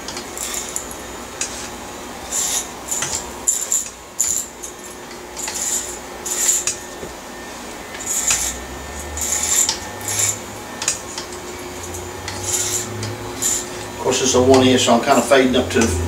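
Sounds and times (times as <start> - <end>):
electric hair clippers humming: 2.5 - 16.0
clippers cutting hair: 7.9 - 16.0.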